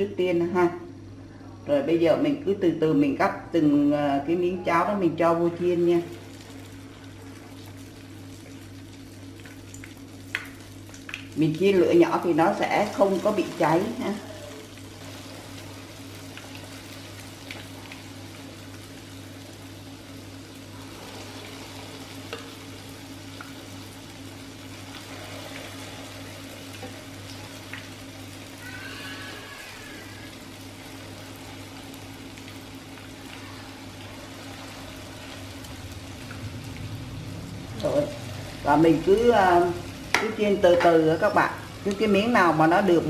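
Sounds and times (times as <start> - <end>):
patties sizzling in oil: 4.7 - 43.0
low hum: 30.3 - 42.0.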